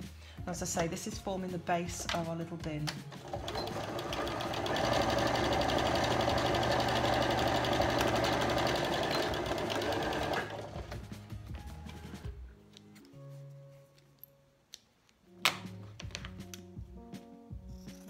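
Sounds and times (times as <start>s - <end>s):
sewing machine stitching: 3.1s - 11.0s.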